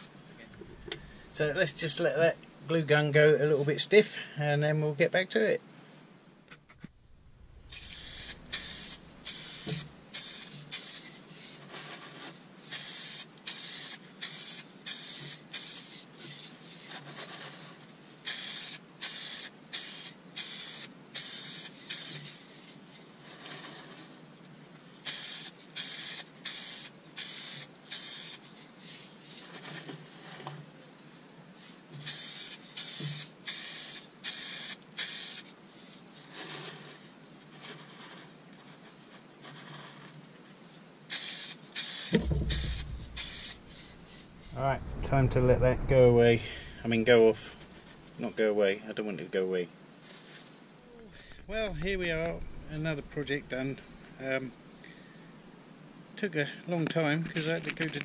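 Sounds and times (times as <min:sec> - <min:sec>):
aerosol can spraying: 0:07.7 - 0:11.2, 0:12.7 - 0:16.0, 0:18.2 - 0:22.3, 0:25.0 - 0:28.4, 0:32.0 - 0:35.5, 0:41.1 - 0:44.5.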